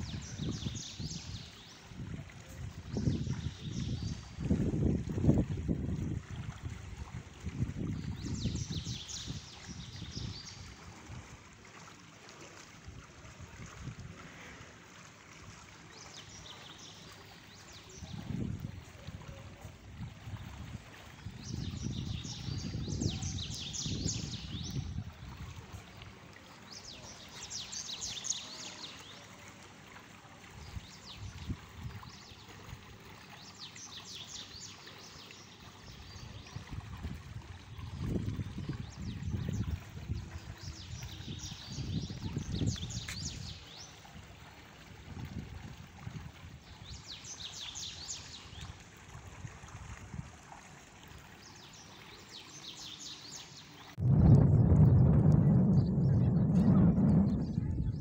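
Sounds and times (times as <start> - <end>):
wind rumbling on microphone: 0.0 - 11.5, 12.8 - 14.6, 17.7 - 26.2, 30.5 - 33.1, 35.7 - 50.4, 53.8 - 58.0.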